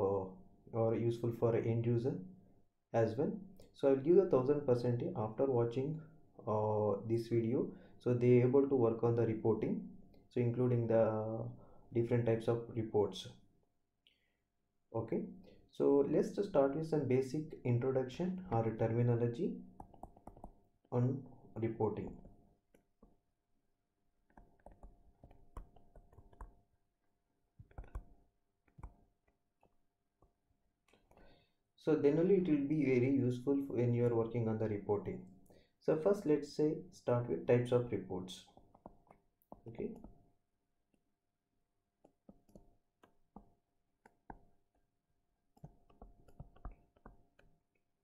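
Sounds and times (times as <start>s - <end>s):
pen tapping on a screen: 19.7s - 20.6s, 24.3s - 26.6s, 27.6s - 30.3s, 38.5s - 40.2s, 42.0s - 44.9s, 45.5s - 47.6s.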